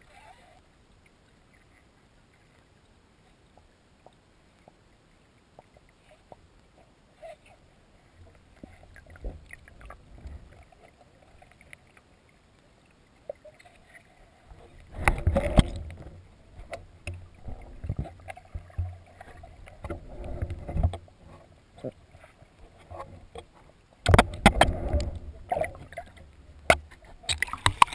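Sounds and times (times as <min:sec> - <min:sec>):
muffled underwater water movement: 0:00.0 - 0:27.9
rush of water and bubbles: 0:00.0 - 0:27.9.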